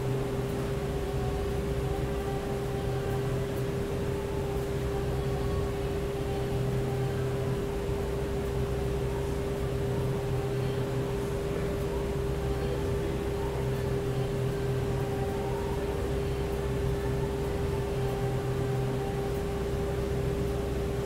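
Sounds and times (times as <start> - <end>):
steady mechanical hum: 0.0 - 21.0.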